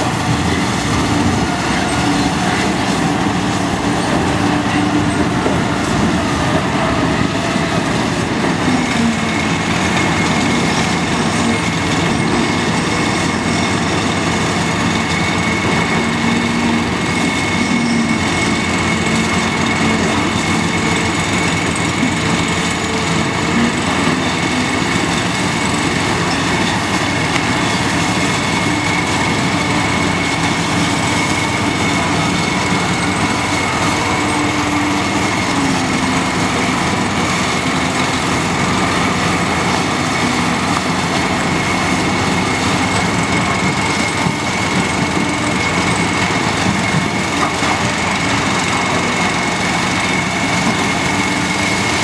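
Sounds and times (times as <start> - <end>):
loader diesel engine under load: 0.0 - 52.0.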